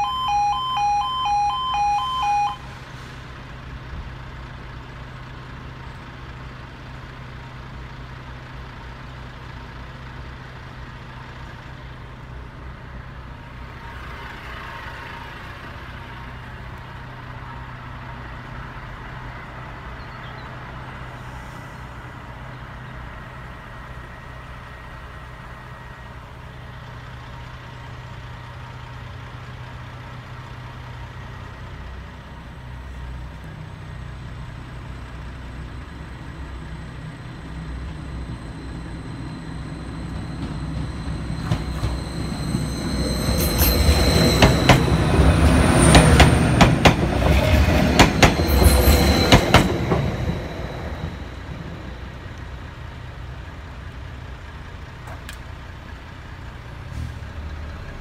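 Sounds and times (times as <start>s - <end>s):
high wheel squeal: 0.0s - 3.5s, 13.5s - 18.0s, 34.5s - 53.6s
train engine hum: 0.0s - 58.0s
wheels clattering over rail joints: 39.4s - 52.4s.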